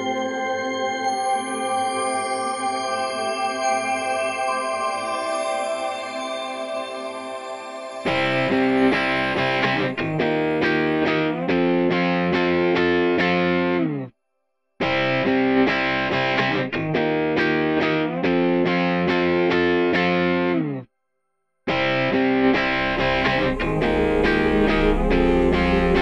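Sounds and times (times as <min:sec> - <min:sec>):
distorted electric guitar music: 0:08.0 - 0:14.1, 0:14.8 - 0:20.8, 0:21.7 - 0:26.0.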